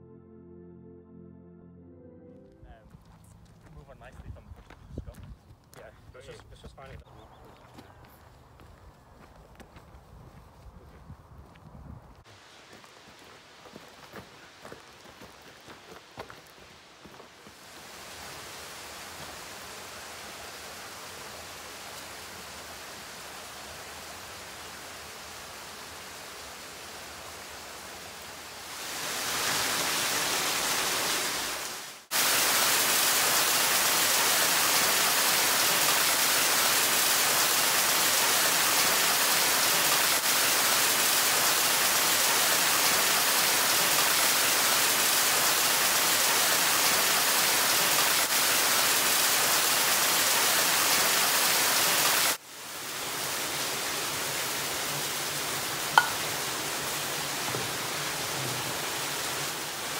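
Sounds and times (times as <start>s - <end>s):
rushing water: 12.2s - 59.9s.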